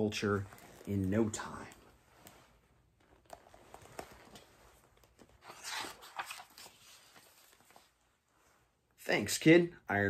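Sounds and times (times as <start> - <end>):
paper page rustling: 0.4 - 8.0.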